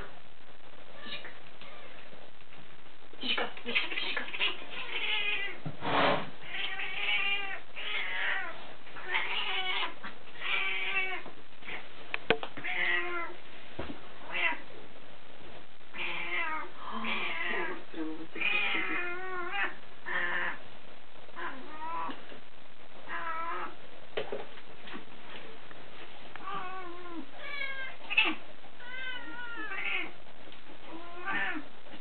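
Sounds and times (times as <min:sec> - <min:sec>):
cats meowing: 0:01.0 - 0:02.0, 0:03.8 - 0:05.7, 0:06.4 - 0:11.9, 0:12.6 - 0:13.4, 0:14.3 - 0:14.7, 0:15.9 - 0:20.6, 0:21.4 - 0:22.2, 0:23.0 - 0:23.8, 0:26.4 - 0:30.2, 0:30.8 - 0:31.7.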